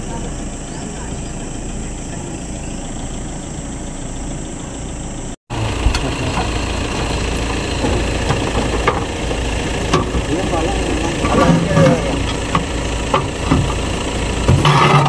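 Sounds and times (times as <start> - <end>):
vehicle engine rumbling: 0.0 - 15.0
short knocks and rattles: 5.8 - 15.0.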